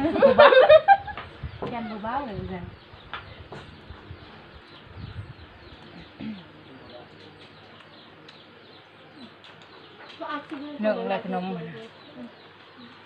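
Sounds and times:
birds chirping: 0.0 - 13.0
faint low voices: 1.5 - 13.0
small eating clicks: 7.1 - 10.8.

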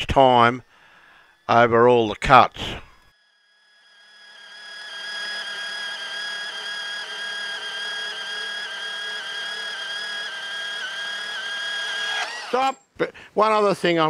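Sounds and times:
bandsaw whining cutting steel: 3.2 - 12.8.

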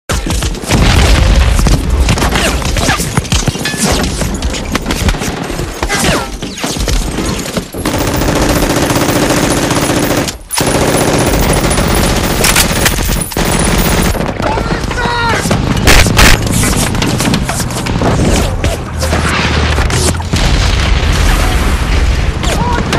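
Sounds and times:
automatic gunfire: 7.8 - 17.4.

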